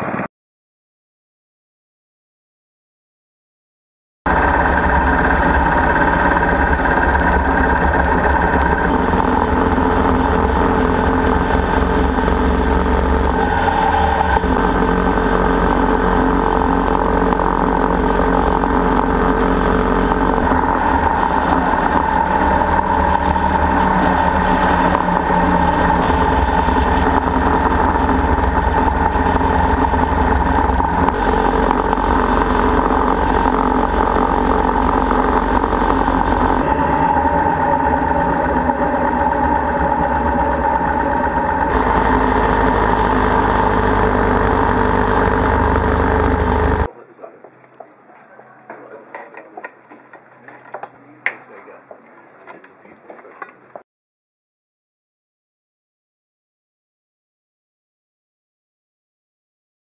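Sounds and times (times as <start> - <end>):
motorcycle engine drone: 0.0 - 0.3, 4.3 - 46.9.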